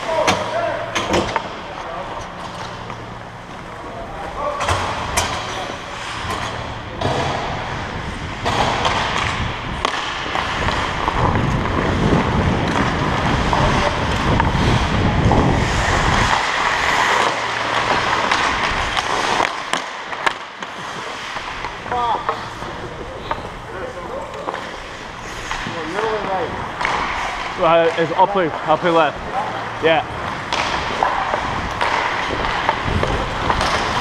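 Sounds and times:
skates scraping on ice: 5.4s - 34.0s
wind buffeting microphone: 10.9s - 16.3s.

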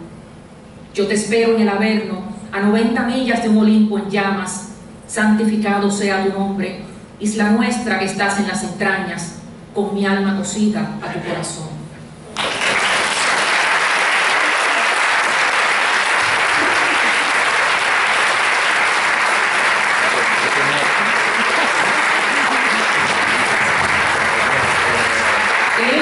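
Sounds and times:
audience applauding: 12.4s - 26.0s.

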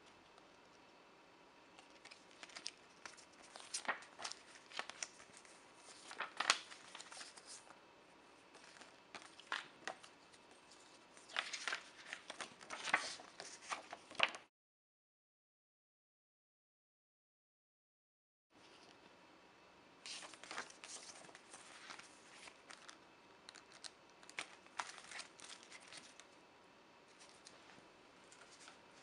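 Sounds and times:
card and paper rustling: 1.8s - 7.8s, 8.4s - 14.5s, 20.1s - 26.4s, 27.1s - 29.0s.

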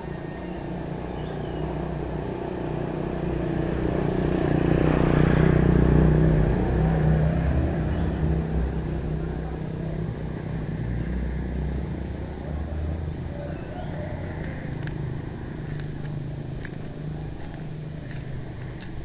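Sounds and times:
bird chirps: 0.0s - 1.9s, 12.7s - 14.7s
engine rumble: 0.0s - 19.0s.

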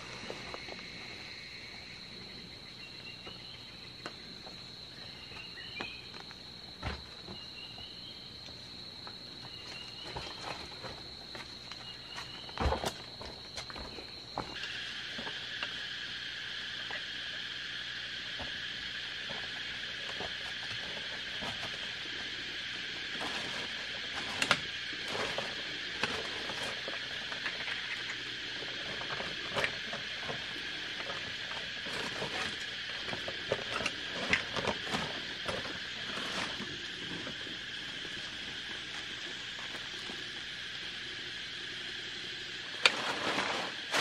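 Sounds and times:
high insect hum: 0.0s - 44.0s
dry leaves rustling and crackling: 20.3s - 37.6s, 42.8s - 44.0s.

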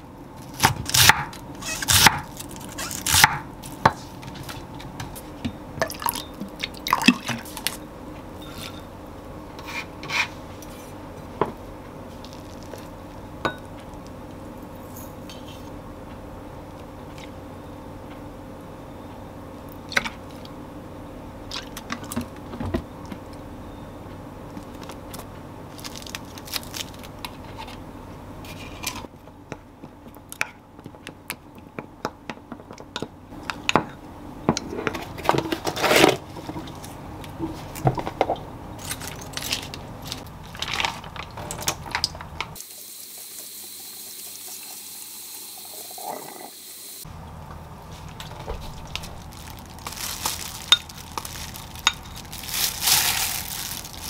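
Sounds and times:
water running at sink: 42.6s - 47.0s
noodles handled in strainer: 48.0s - 54.0s.

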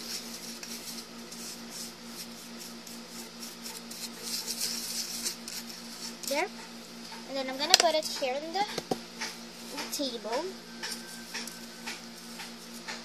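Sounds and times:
stirring and scraping paste: 0.0s - 6.4s.

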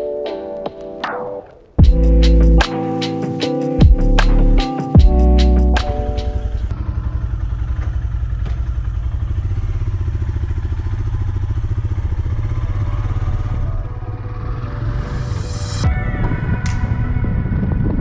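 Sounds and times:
motorcycle engine running: 3.8s - 18.0s.

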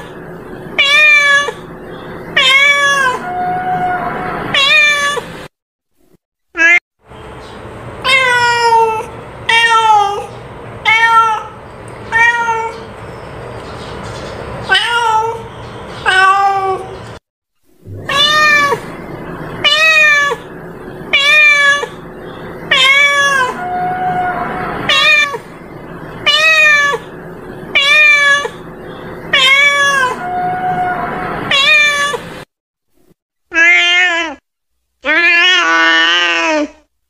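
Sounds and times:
cat meowing: 0.8s - 1.6s, 2.4s - 5.3s, 8.0s - 12.9s, 14.7s - 17.0s, 17.9s - 19.0s, 19.6s - 20.5s, 21.1s - 22.0s, 22.7s - 25.5s, 26.2s - 27.1s, 27.7s - 28.6s, 29.3s - 32.3s, 33.5s - 34.4s, 35.0s - 36.8s.

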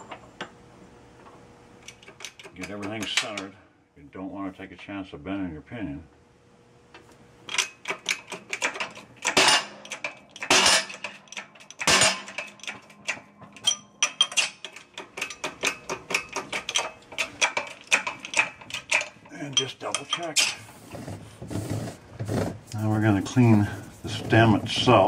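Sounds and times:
hydraulic press metallic clicking: 7.4s - 20.7s
heavy metal clanks: 7.6s - 20.7s.

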